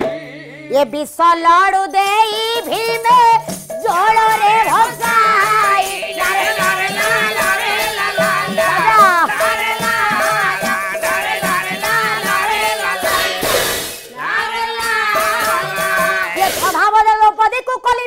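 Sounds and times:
chorus singing in unison: 0.0s - 0.7s, 4.6s - 16.8s
held instrumental tone: 2.4s - 16.8s
brass hand cymbals: 2.6s - 16.8s.

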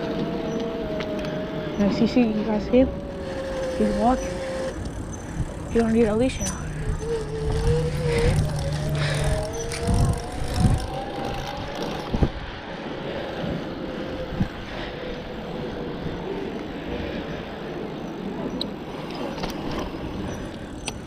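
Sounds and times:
electric motor whine: 0.0s - 12.4s
wind noise on microphone: 0.0s - 21.0s.

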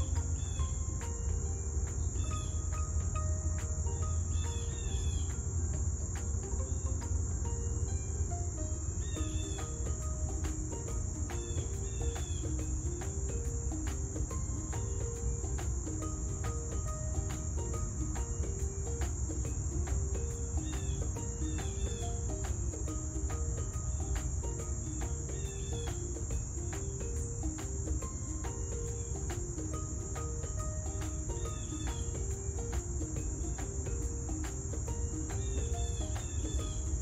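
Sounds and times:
high-pitched insect drone: 0.0s - 37.0s
soft background music: 0.0s - 37.0s.

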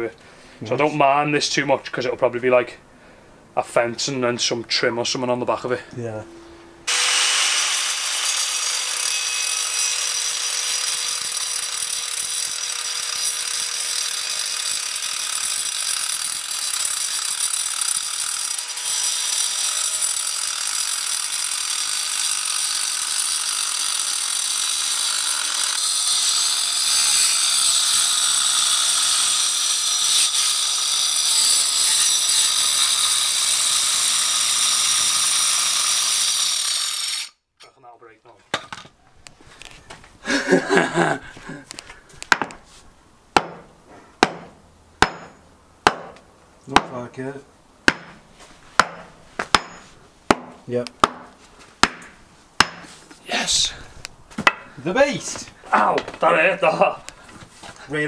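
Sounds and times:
angle grinder cutting concrete: 6.9s - 37.4s.

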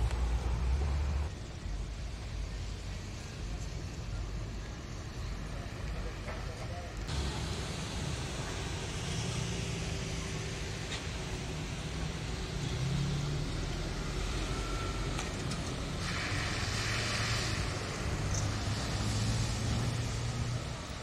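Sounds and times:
vehicle engine running close by: 7.1s - 21.0s.

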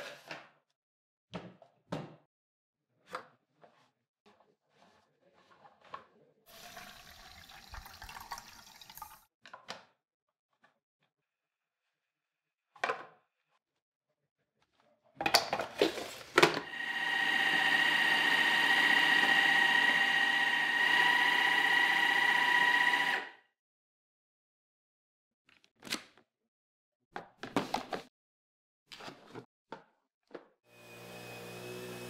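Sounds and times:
cordless vacuum whine: 16.5s - 23.4s, 30.7s - 32.0s.

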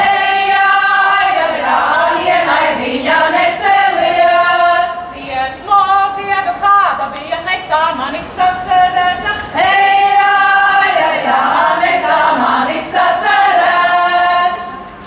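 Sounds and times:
women's choir singing folk song: 0.0s - 15.0s.

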